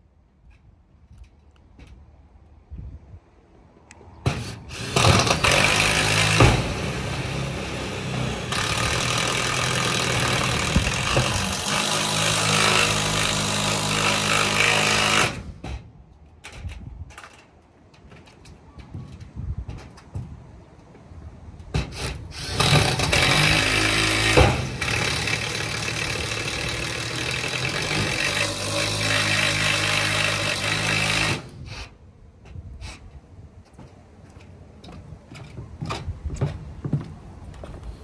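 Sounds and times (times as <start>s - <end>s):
power drill driving screw into metal: 4.3s - 7.3s, 8.4s - 15.8s, 21.8s - 31.9s.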